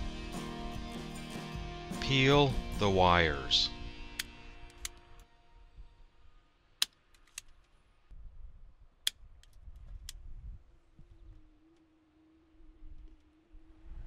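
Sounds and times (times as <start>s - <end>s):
wire stripper clicking: 4.2s - 5.2s.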